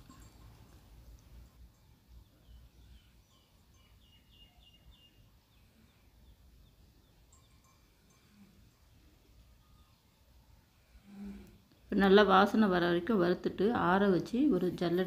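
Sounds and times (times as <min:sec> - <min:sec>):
faint bird chirps: 0:00.0 - 0:11.9.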